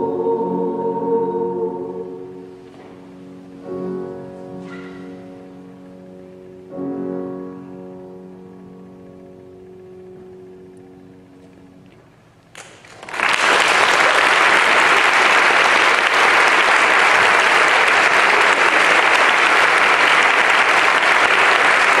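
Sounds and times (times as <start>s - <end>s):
audience applause: 12.6s - 22.0s.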